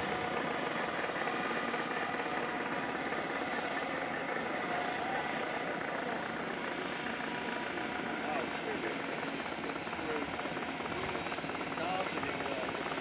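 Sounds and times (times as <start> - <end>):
faint whine: 0.0 - 13.0.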